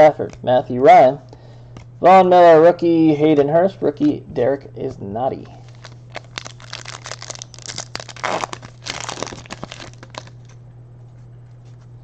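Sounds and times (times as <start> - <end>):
cards rustling: 5.4 - 10.6
foil wrapper tearing and crinkling: 5.6 - 10.6.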